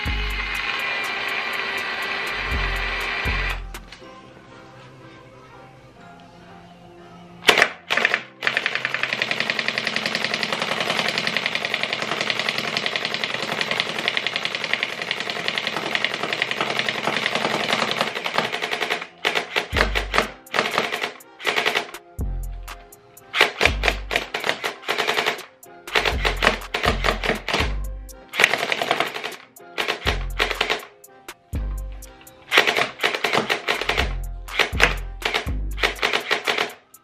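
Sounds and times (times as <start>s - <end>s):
gel blaster firing full auto: 32.5s - 36.8s.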